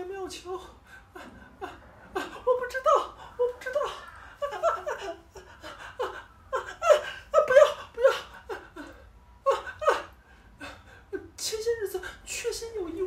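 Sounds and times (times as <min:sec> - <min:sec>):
person laughing: 0:03.4 - 0:10.2.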